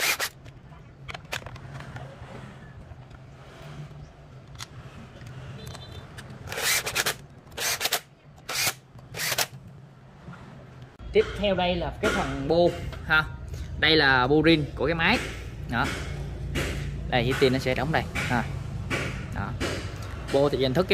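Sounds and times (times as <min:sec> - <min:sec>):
power screwdriver driving screws: 0:00.0 - 0:00.4, 0:06.5 - 0:09.6.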